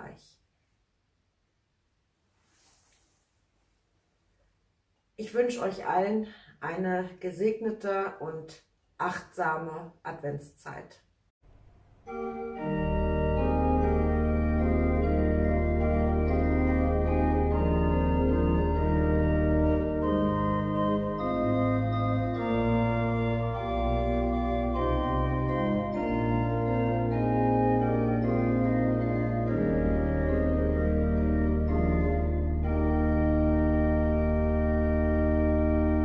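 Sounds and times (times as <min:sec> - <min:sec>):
organ playing slow chords: 0:12.0 - 0:36.0.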